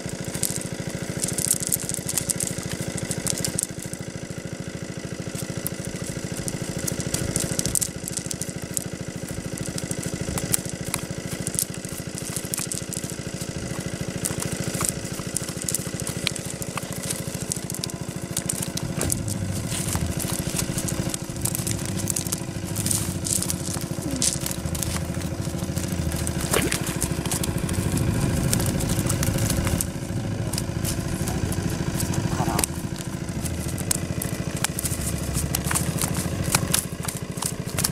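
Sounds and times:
net and plants rustling: 0.0s - 37.9s
small engine running: 0.0s - 37.9s.

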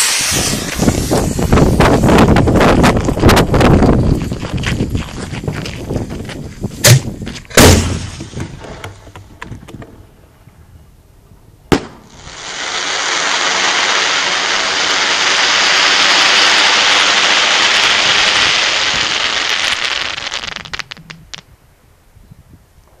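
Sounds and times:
firework bangs: 0.0s - 4.1s, 6.8s - 8.7s, 11.7s - 21.4s
firework crackling: 0.0s - 5.0s, 11.7s - 21.5s.

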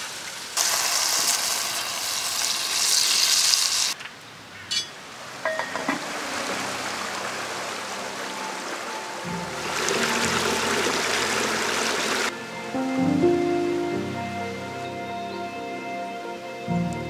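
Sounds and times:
water hissing in hot pot: 0.0s - 4.0s, 6.0s - 12.3s.

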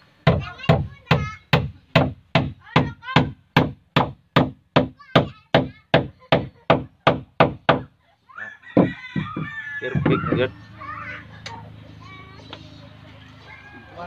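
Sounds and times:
voices: 5.0s - 14.0s.

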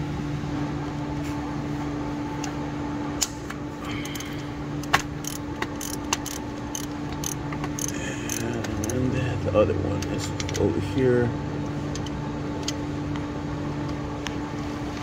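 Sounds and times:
steady low hum: 0.0s - 15.0s
ratchet clicks and knocks: 4.0s - 9.0s.

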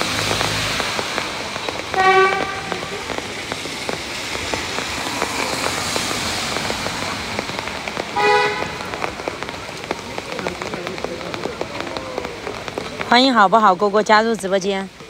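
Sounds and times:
raindrops ticking close by: 0.0s - 15.0s
steady rain: 0.0s - 15.0s
vehicle horn toot: 2.0s - 3.0s, 8.2s - 8.8s.

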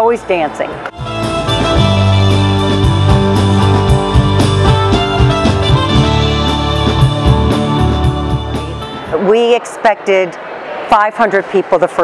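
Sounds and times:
band playing rock song: 1.0s - 9.1s.

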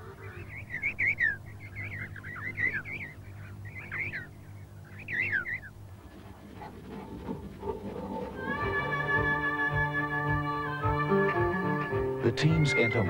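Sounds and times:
penguin chicks whistling: 0.0s - 5.8s.

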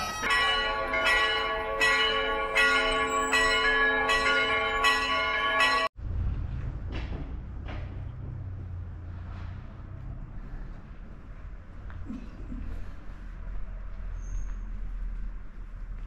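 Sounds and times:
church bells ringing: 0.0s - 6.0s.

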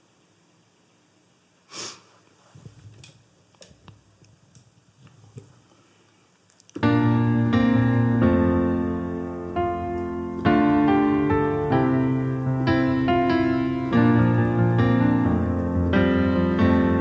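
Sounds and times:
digital piano chords: 6.8s - 17.0s.

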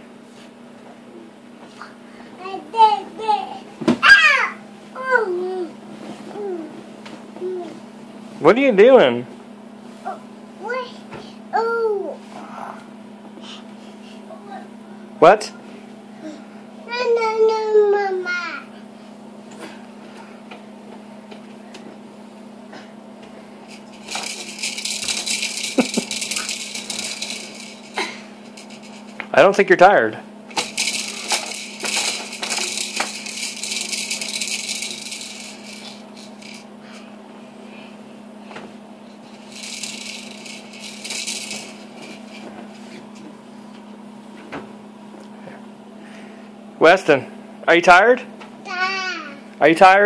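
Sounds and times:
steady low hum: 0.0s - 50.0s
plastic toy rattling: 23.7s - 29.2s, 30.5s - 36.7s, 39.3s - 42.5s.

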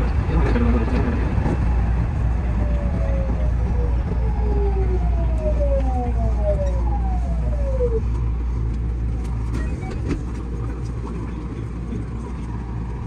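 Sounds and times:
low train rumble: 0.0s - 13.0s.

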